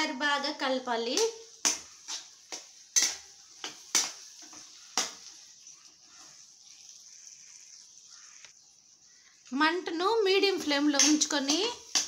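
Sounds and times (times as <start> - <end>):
faint sizzle: 0.0 - 12.0
spatula scraping a pan: 1.5 - 8.4.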